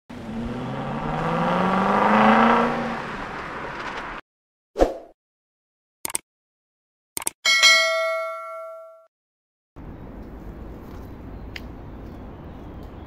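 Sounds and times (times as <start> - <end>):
car engine revving: 0.1 - 4.2.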